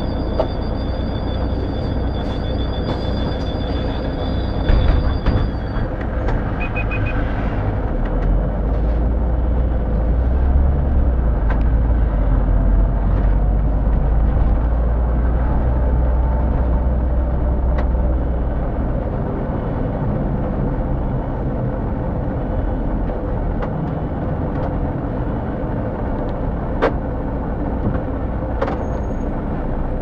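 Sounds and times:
bus engine rumble: 0:00.0 - 0:30.0
quick high beeps: 0:06.6 - 0:07.2.

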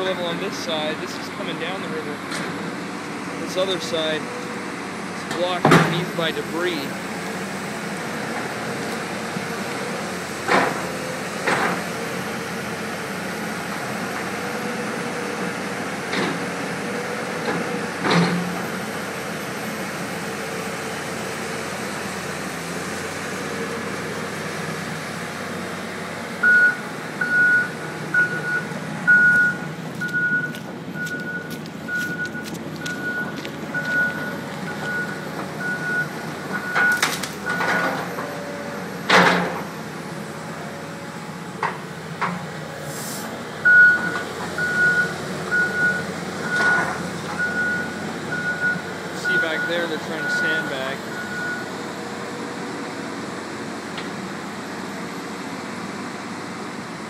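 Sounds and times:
engine running: 0:00.0 - 0:57.0
excavator alarm beeping: 0:26.4 - 0:38.6, 0:43.6 - 0:51.8.

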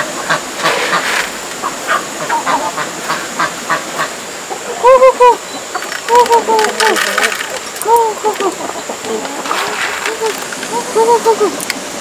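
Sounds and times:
poultry honking calls: 0:00.0 - 0:04.6.

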